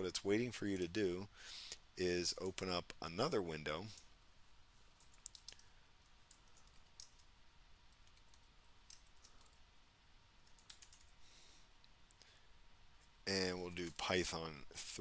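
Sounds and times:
keyboard typing clicks: 5.0s - 5.7s, 10.4s - 11.1s.

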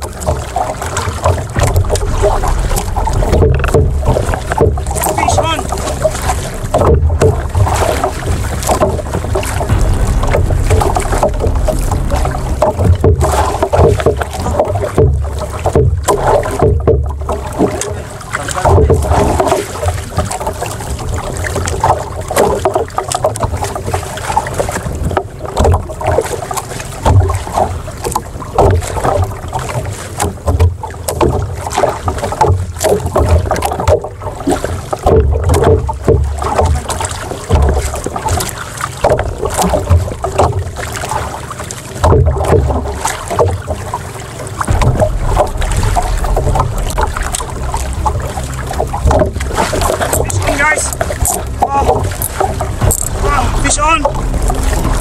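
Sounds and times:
water slapping against hull: 0.0s - 55.0s
wind buffeting microphone: 1.2s - 22.7s, 42.1s - 55.0s.

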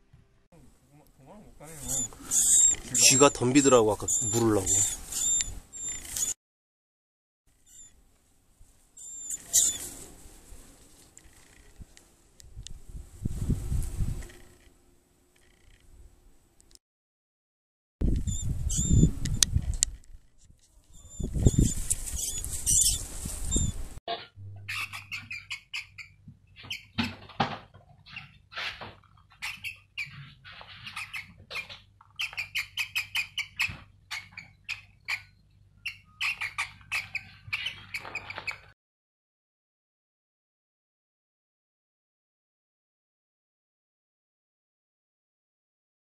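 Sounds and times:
rustling in dry grass: 1.6s - 6.3s, 8.2s - 14.5s, 19.7s - 24.0s
mouse squeaking: 1.8s - 6.4s, 7.7s - 7.9s, 9.0s - 9.9s, 18.2s - 19.1s, 20.9s - 23.7s, 24.6s - 26.9s, 29.4s - 38.7s.

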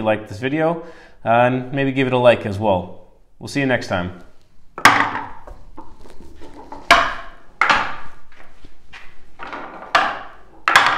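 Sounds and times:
wooden ball knocking on ramps: 4.8s - 8.5s, 9.4s - 10.9s
ball rolling rattle: 4.8s - 10.9s.

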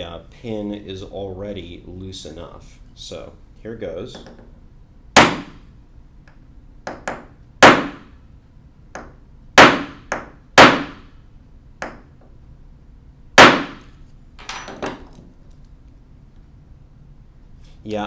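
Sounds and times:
hammer striking metal punch: 5.2s - 5.6s, 6.9s - 8.1s, 9.0s - 11.1s, 13.4s - 13.9s.

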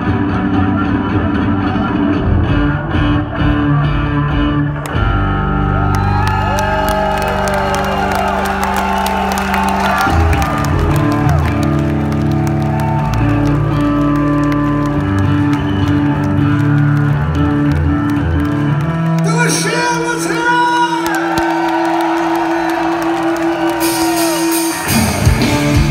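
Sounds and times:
electric bass guitar: 0.0s - 20.1s, 23.6s - 25.9s
crowd shouting and whooping: 4.9s - 18.0s, 19.2s - 25.9s.

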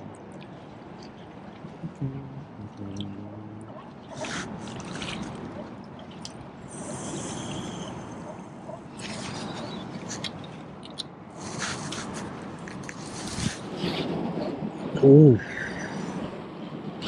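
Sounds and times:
wind noise: 0.0s - 17.0s
water sloshing: 3.9s - 6.7s.

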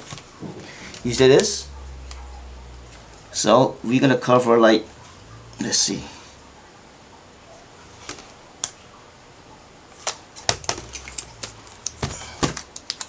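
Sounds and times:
foil crinkling: 9.9s - 13.0s.

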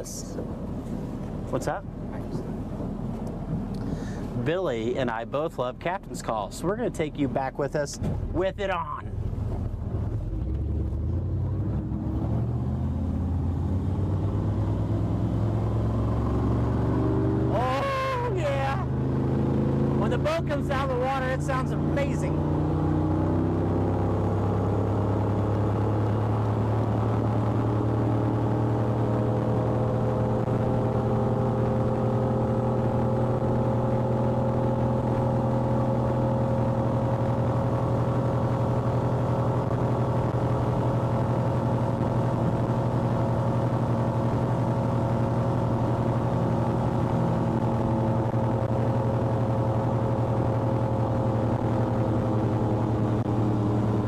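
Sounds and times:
boat engine running hard: 17.4s - 54.0s.

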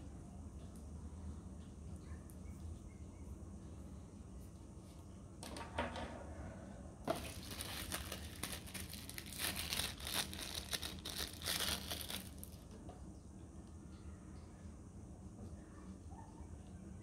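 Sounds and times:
plastic packaging crinkling: 7.1s - 12.7s.

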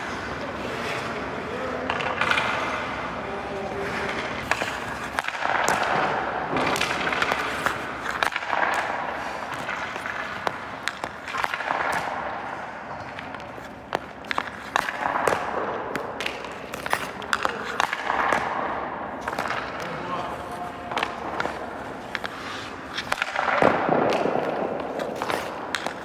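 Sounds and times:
hockey sticks and pucks clacking: 0.0s - 26.0s
skate blades scraping on ice: 0.0s - 26.0s.

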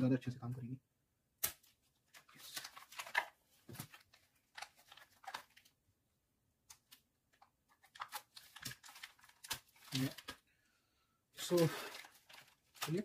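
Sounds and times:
plastic wrap crinkling: 2.1s - 5.8s, 7.4s - 10.5s, 11.4s - 13.0s.

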